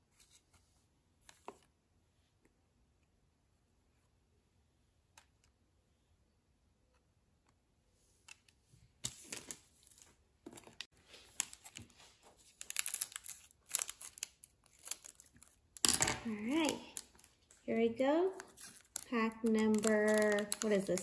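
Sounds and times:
foil wrapper crinkling and tearing: 10.9s - 21.0s.

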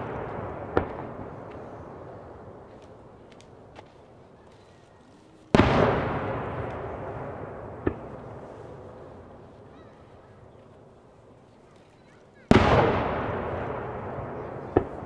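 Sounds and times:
firework bang with rolling boom: 0.0s - 2.4s, 5.5s - 9.4s, 12.5s - 15.0s
sharp firework crack: 0.0s - 3.8s, 5.5s - 9.3s, 12.5s - 15.0s.

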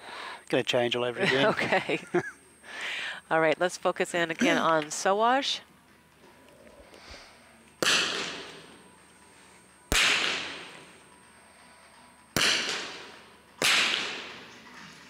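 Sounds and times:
rifle shots echoing: 7.8s - 8.7s, 9.9s - 10.9s, 12.4s - 14.5s.

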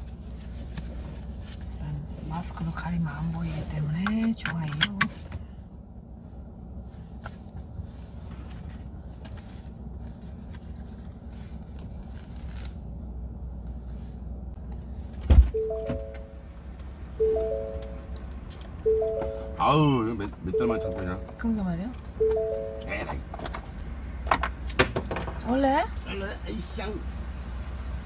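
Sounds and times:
low rumble inside car: 0.0s - 28.0s
descending electronic car chime: 15.5s - 18.2s, 18.8s - 23.3s.

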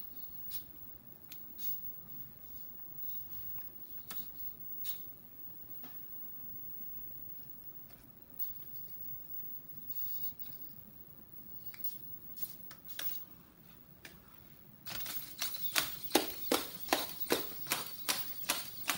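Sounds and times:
robot feet tapping on tile: 14.9s - 18.9s.

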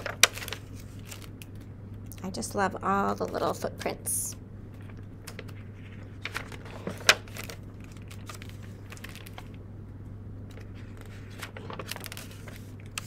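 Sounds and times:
book pages turning and rustling: 0.0s - 1.7s, 4.7s - 9.6s, 10.5s - 13.0s
steady low hum: 0.0s - 13.0s.

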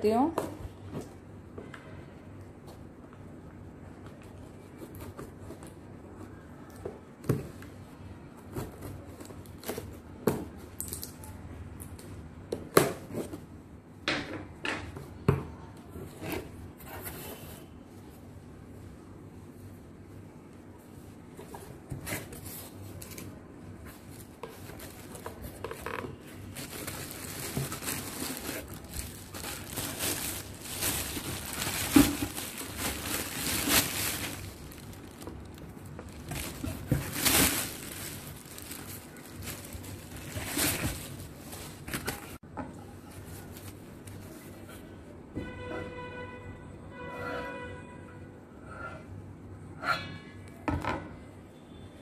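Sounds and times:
plastic packaging crinkling: 22.2s - 42.4s.

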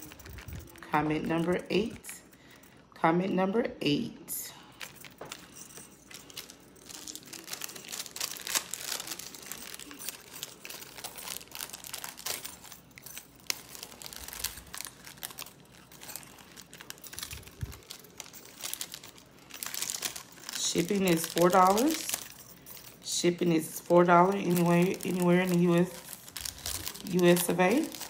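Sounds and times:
packaging crinkling: 0.0s - 2.6s, 4.7s - 28.0s.

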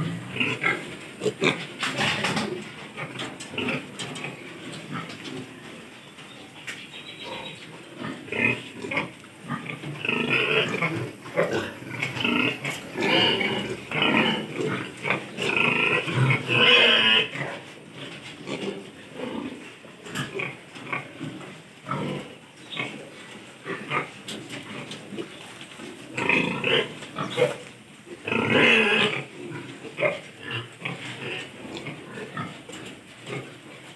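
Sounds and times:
piglets calling: 7.0s - 17.3s.

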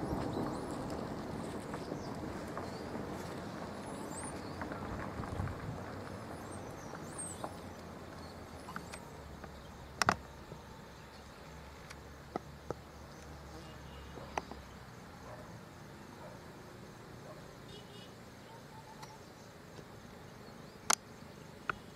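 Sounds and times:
faint high chirping: 6.1s - 11.8s, 17.2s - 21.9s
sharp clicks: 8.7s - 10.3s.

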